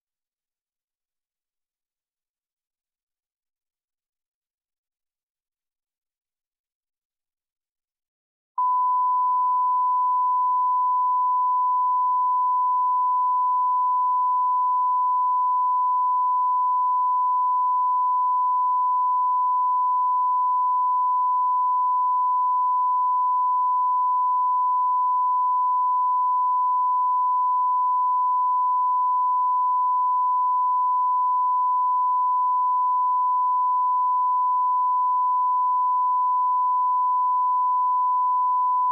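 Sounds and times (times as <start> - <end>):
steady test tone beep: 8.6 - 38.9.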